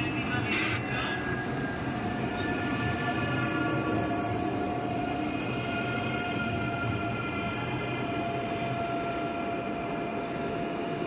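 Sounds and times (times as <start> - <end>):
train wheels squealing: 0.4 - 11.0.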